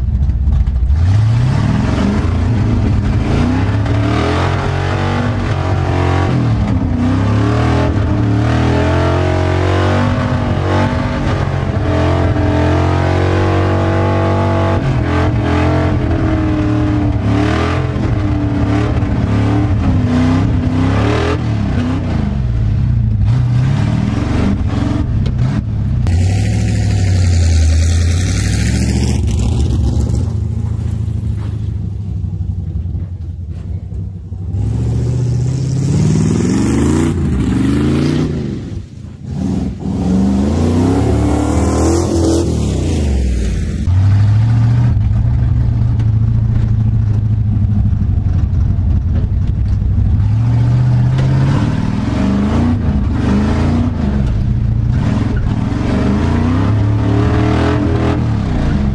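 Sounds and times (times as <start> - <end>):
pickup engine revving hard: 0.9 - 22.5, 23.2 - 30.5, 34.5 - 43.9, 50.2 - 58.9.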